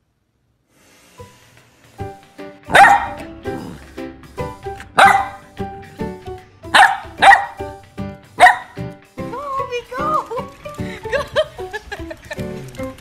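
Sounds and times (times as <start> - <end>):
light background music: 0.8 - 13.0
puppy barking: 2.7 - 3.3, 4.9 - 5.5, 6.7 - 7.8, 8.4 - 8.8.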